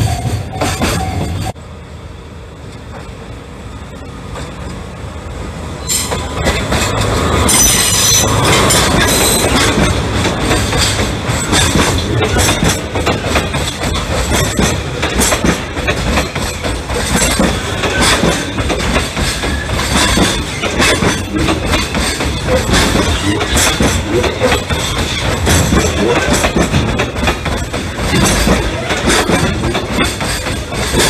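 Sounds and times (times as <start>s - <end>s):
freight train passing: 0.0s - 31.0s
wheels clattering over rail joints: 5.8s - 31.0s
high-pitched wheel squeal: 7.5s - 9.4s.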